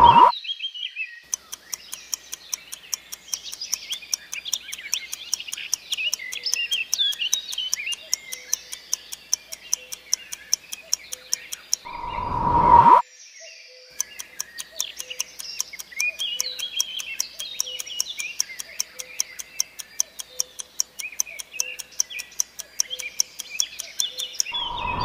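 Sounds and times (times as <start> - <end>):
birds chirping: 0.0 - 0.3, 0.9 - 25.0
countdown clock ticking: 0.0 - 0.3, 1.3 - 13.0, 13.9 - 25.0
rising whoosh: 0.0 - 0.3, 11.9 - 13.0, 24.6 - 25.0.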